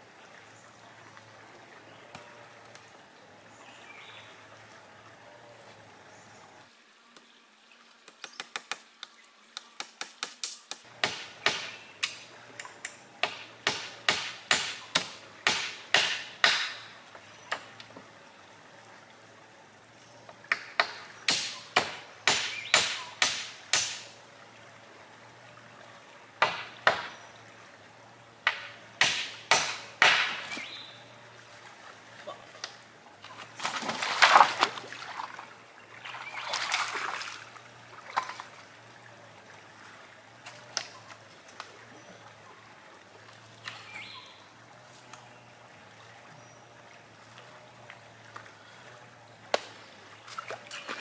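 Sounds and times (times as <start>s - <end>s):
hand tool striking wood: 9.8s - 12.2s, 13.2s - 16.9s, 20.5s - 24.0s, 26.4s - 27.2s, 28.5s - 30.7s.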